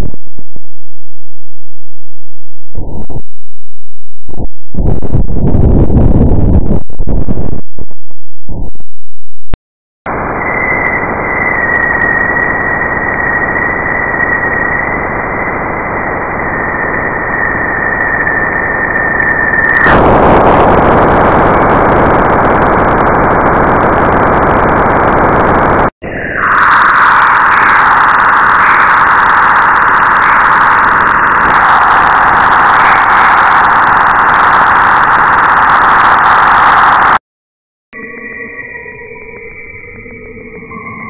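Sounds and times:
choppy synthetic noise: 0:10.1 - 0:37.2
high whistling tone: 0:10.3 - 0:20.0, 0:38.0 - 0:41.0.

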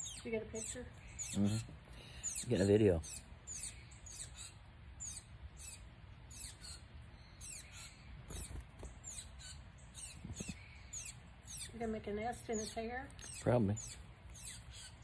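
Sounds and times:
songbird high thin chirps: 0:00.0 - 0:15.0.

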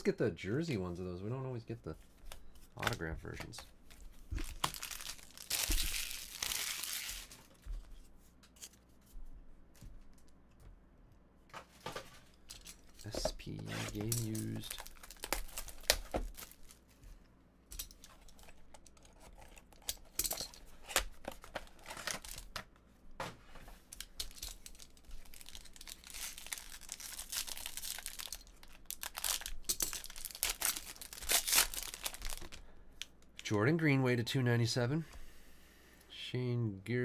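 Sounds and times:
foil pack crinkling: 0:04.3 - 0:07.6, 0:13.9 - 0:16.8, 0:23.9 - 0:33.2.

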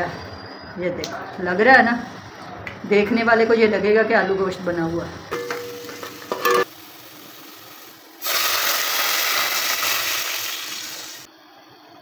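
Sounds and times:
onions frying hiss: 0:05.4 - 0:11.3
water gushing into hot pot: 0:07.2 - 0:11.2.

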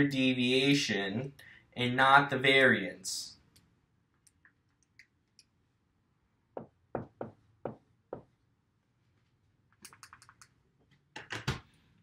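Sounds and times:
marker knocking on whiteboard: 0:06.5 - 0:08.4.

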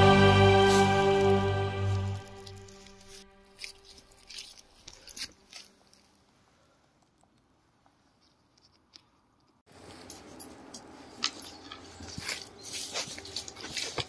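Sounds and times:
dry leaves crackling underfoot: 0:00.5 - 0:06.4, 0:09.8 - 0:14.0
rustling handling noise: 0:00.6 - 0:14.0.

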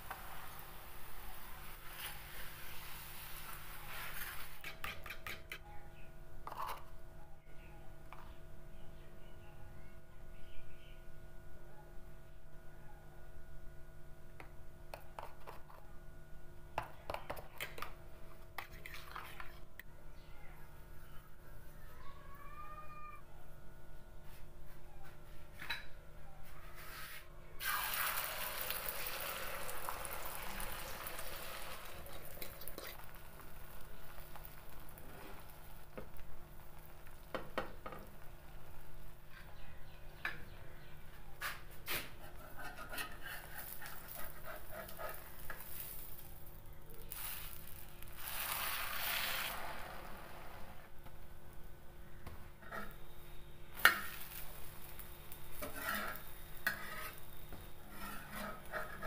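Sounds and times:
egg sizzling on a griddle: 0:00.0 - 0:05.0, 0:27.6 - 0:39.1, 0:42.9 - 0:50.8, 0:53.7 - 0:59.0
metal spatula scraping griddle: 0:01.8 - 0:05.5, 0:41.9 - 0:46.1, 0:47.2 - 0:50.8, 0:52.6 - 0:53.1, 0:53.8 - 0:59.0.

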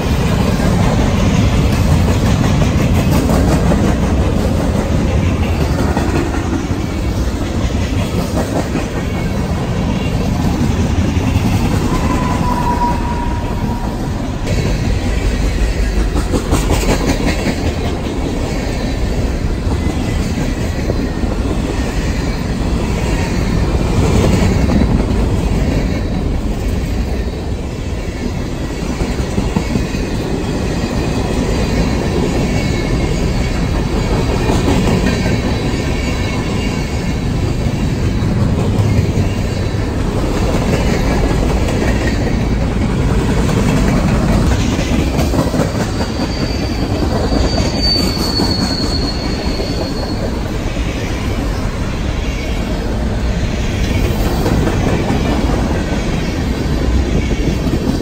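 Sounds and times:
train wheels rumbling: 0:00.0 - 0:58.0
high thin wheel squeal: 0:11.9 - 0:14.1, 0:45.8 - 0:50.4.

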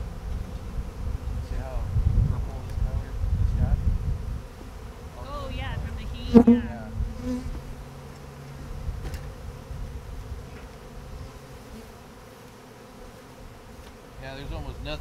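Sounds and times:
bees buzzing: 0:03.1 - 0:14.5.

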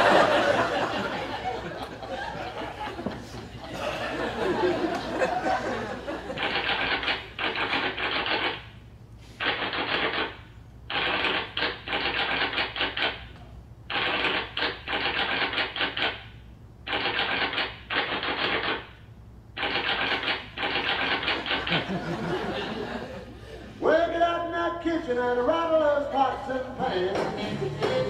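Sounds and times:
typewriter keys clacking: 0:09.5 - 0:13.2, 0:13.9 - 0:16.2, 0:16.9 - 0:18.8.

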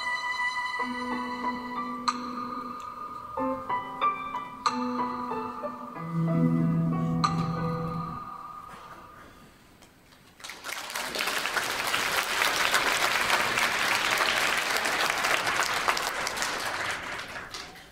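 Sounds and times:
held music notes: 0:00.0 - 0:09.4
audience applauding: 0:10.2 - 0:17.9.

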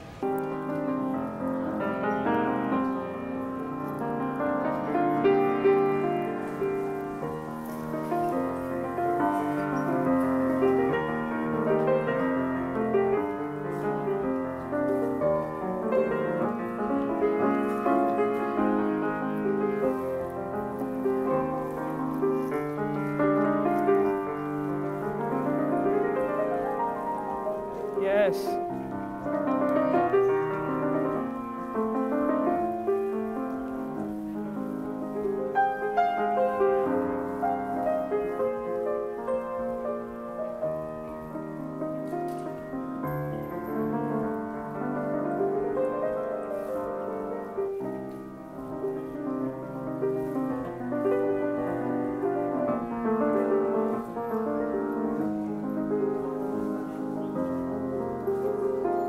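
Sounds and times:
grand piano piece: 0:00.0 - 0:59.0.

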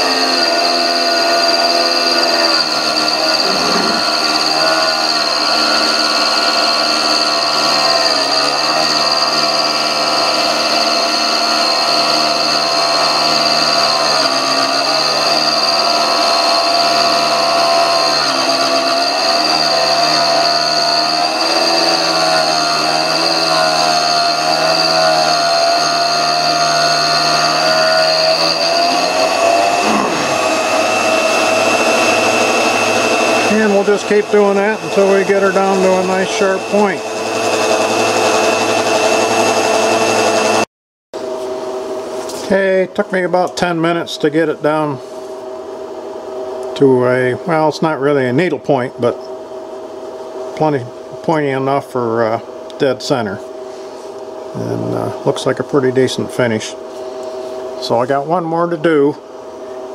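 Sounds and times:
steady hum: 0:00.0 - 0:08.7, 0:26.9 - 0:40.0
grinder whining: 0:00.0 - 0:59.9.

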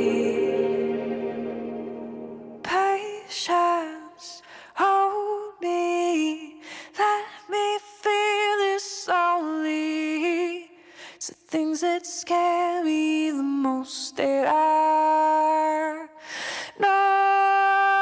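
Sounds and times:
woman singing slow melody: 0:00.0 - 0:01.5, 0:16.8 - 0:18.0.

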